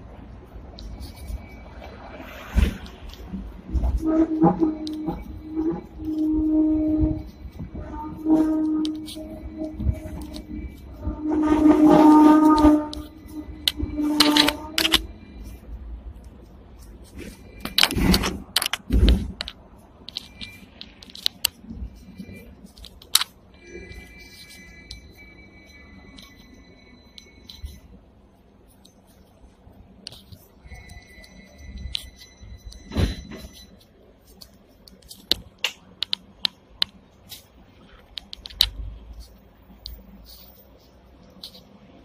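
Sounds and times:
tram rattling on tracks: 0.0s - 15.4s.

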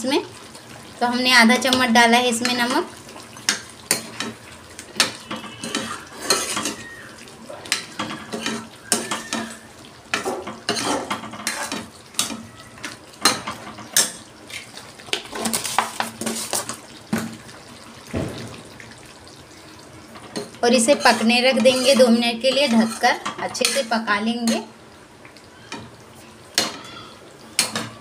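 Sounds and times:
metal ladle scraping a pan: 3.5s - 7.0s, 7.7s - 12.5s, 13.2s - 16.8s, 20.2s - 24.7s.

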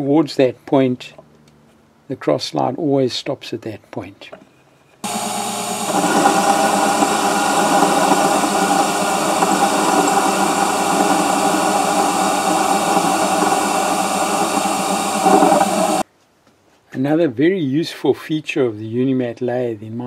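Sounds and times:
mini lathe running: 5.0s - 16.0s.

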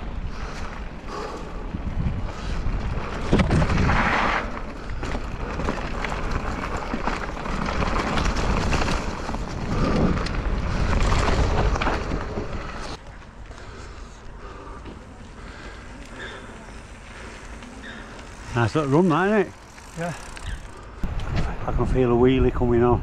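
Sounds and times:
wind buffeting microphone: 0.0s - 13.0s
bike tyre rumble and knocks: 0.4s - 13.7s, 14.4s - 21.6s.

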